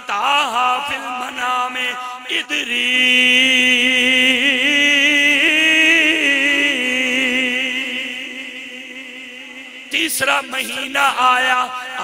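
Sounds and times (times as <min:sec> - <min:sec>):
man chanting a long note: 0:02.7 - 0:12.0.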